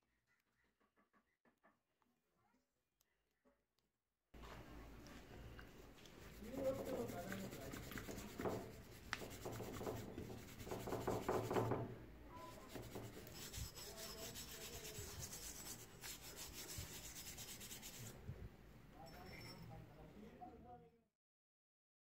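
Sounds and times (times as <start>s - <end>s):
stiff brush scrubbing metal: 6.2s - 11.8s, 12.5s - 18.2s.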